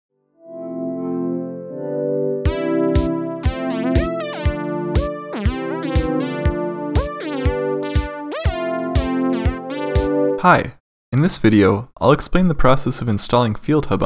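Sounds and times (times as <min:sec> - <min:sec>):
sliding keyboard notes: 0:00.4 - 0:10.4
synthesizer chords: 0:00.4 - 0:10.4
steady electronic beat: 0:02.5 - 0:10.4.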